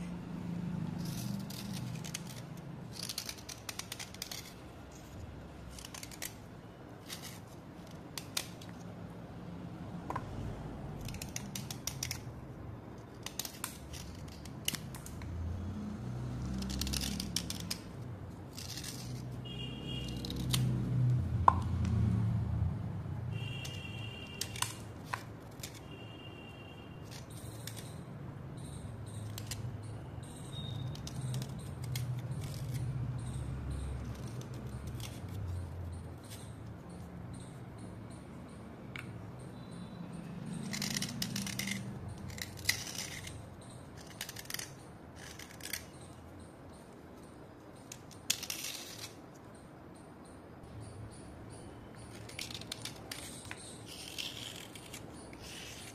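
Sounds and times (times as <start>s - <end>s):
slate chips scraping: 1.0s - 8.8s, 16.6s - 20.7s, 40.4s - 46.2s, 47.8s - 49.3s, 52.0s - 55.9s.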